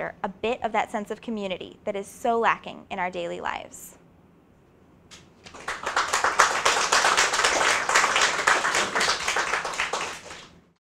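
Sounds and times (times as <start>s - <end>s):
audience applauding: 5.5s - 10.6s.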